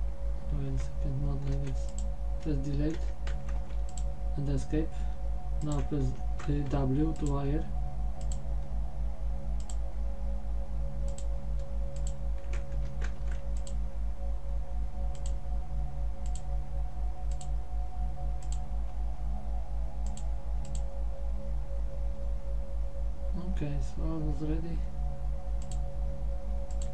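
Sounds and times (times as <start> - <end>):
faint high whine: 0.0 - 26.9
low electrical hum: 0.0 - 26.9
computer mouse clicks: 0.8 - 4.1, 5.6 - 7.4, 8.2 - 8.4, 9.6 - 9.8, 11.1 - 11.3, 12.0 - 13.8, 15.1 - 15.4, 16.2 - 16.5, 17.3 - 17.5, 18.4 - 18.6, 20.0 - 20.9, 25.6 - 25.8, 26.7 - 26.9.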